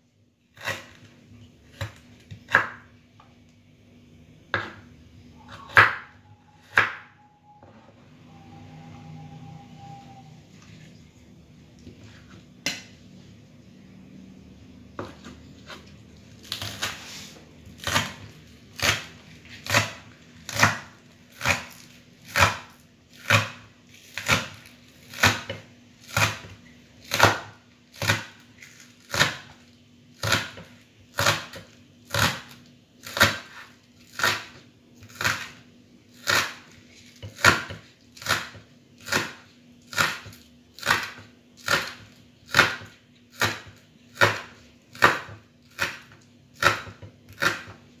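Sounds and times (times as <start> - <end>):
knife chopping on wooden board: 4.5 - 4.9, 5.5 - 6.1, 6.7 - 7.0, 15.0 - 15.8, 17.8 - 28.4, 30.2 - 35.6, 37.2 - 47.8.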